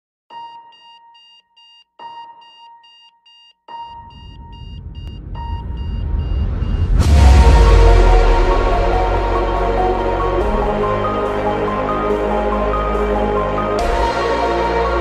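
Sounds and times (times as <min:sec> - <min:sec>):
alarm clock beeping: 0:00.3 - 0:07.0
music: 0:00.3 - 0:15.0
lower electronic tone: 0:03.9 - 0:11.8
low rumble: 0:04.1 - 0:11.4.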